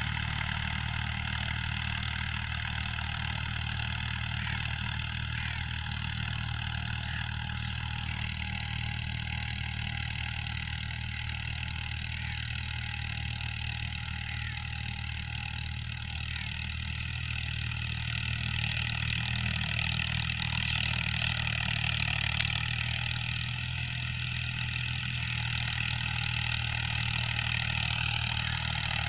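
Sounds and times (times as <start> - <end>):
diesel tractor engine under load: 0.0 - 29.0.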